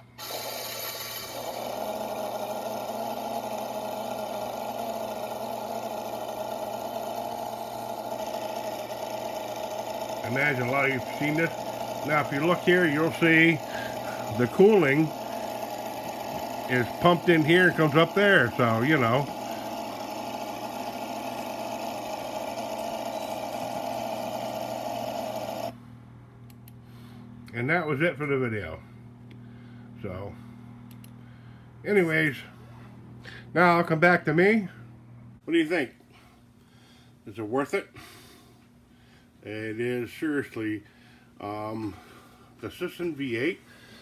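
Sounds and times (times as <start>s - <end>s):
model engine running through speaker: 0.0s - 25.7s.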